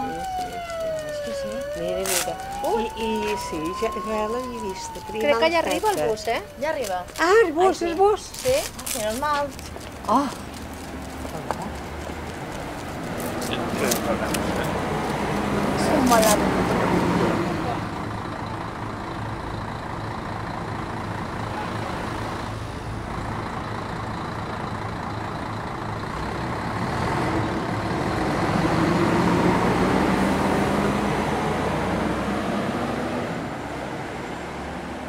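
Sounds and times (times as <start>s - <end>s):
coach engine revving: 0.0s - 18.9s, 26.1s - 35.0s.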